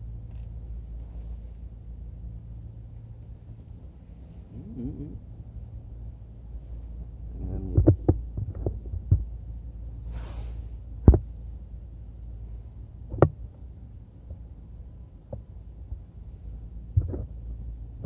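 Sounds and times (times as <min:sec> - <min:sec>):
steady low hum: 0:00.0 - 0:18.0
dull knocks and taps: 0:07.7 - 0:09.3, 0:11.0 - 0:11.3, 0:13.1 - 0:13.4.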